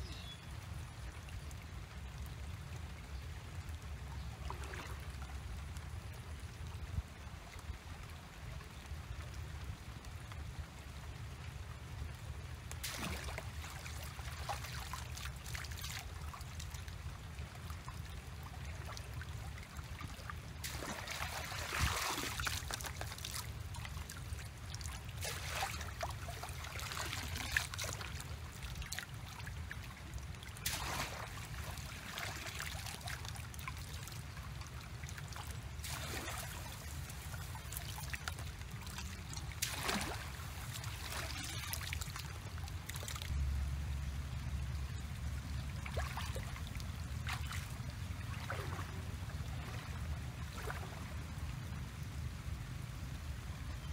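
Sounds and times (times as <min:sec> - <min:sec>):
stream water splashing: 0:03.6 - 0:06.0, 0:12.0 - 0:52.3
steady low rumble: 0:42.0 - 0:53.9.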